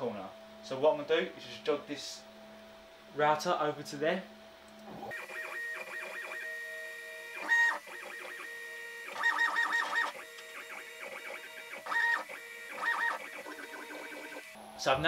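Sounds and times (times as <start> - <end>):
stepper motors whining: 5.1 - 14.6.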